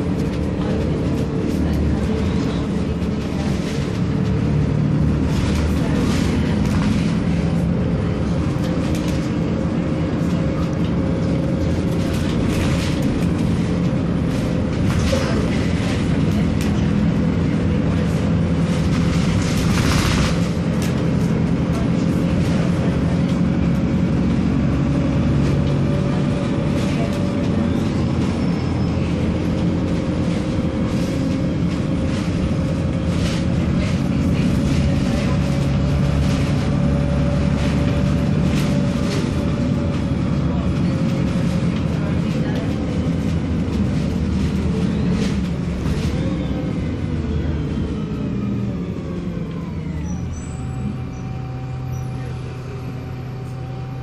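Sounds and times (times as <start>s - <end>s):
rattles and clicks: 0.0s - 24.4s, 29.1s - 46.2s
bus engine drone: 0.0s - 54.0s.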